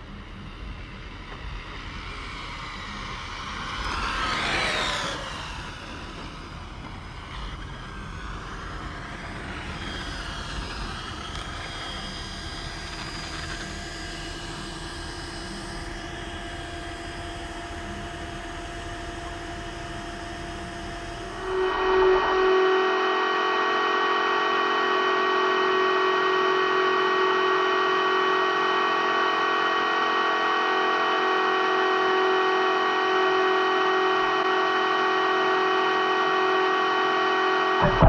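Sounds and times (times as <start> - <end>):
steady hum of even tones: 0.0 - 38.0
electric motor whine passing: 1.4 - 23.7.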